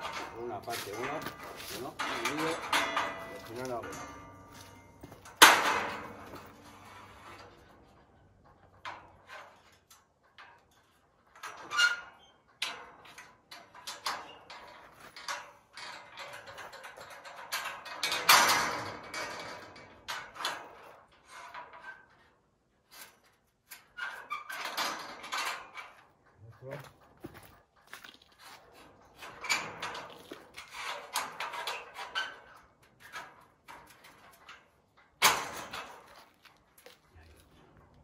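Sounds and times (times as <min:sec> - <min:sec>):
scraping: 0:00.0 - 0:09.9
knocks and clatter: 0:00.0 - 0:11.9, 0:12.5 - 0:22.2, 0:23.8 - 0:38.0.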